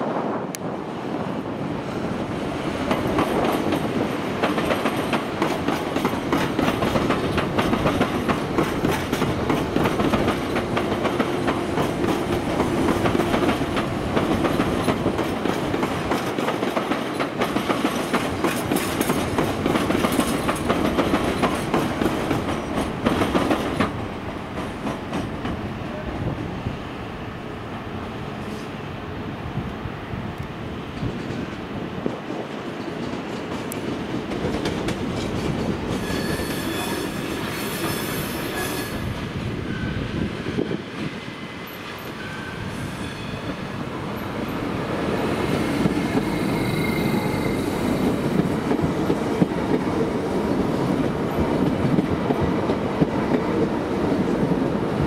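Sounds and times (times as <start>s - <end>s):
train wheels clattering over rail joints: 2.8s - 25.6s, 31.0s - 38.9s.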